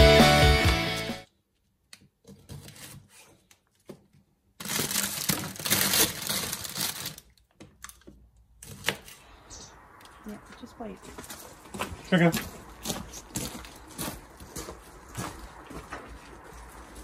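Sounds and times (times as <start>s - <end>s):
plastic bag crinkling: 4.6s - 9.1s.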